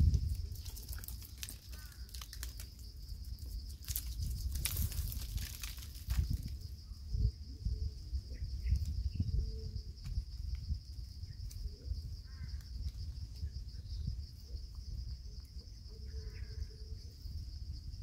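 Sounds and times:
high-pitched insect drone: 6.2s - 18.0s.

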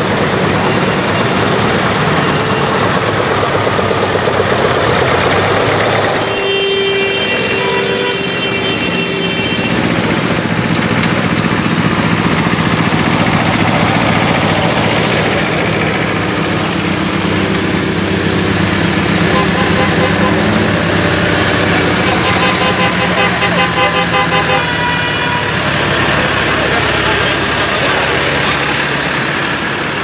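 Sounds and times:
tractor diesel engines passing: 0.0s - 30.0s
vehicle horn: 0.6s - 3.1s, 6.1s - 10.5s, 19.1s - 27.6s.

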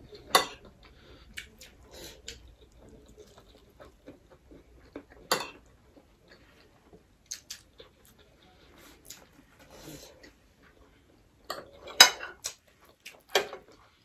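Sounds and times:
chewing and mouth clicks: 0.7s - 9.4s, 12.4s - 14.0s.

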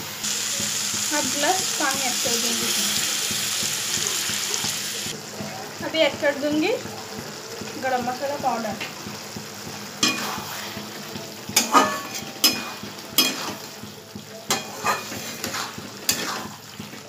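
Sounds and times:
gravy sizzling: 0.0s - 17.0s
spatula scraping metal pan: 10.0s - 10.8s, 11.6s - 13.7s, 14.5s - 16.9s.

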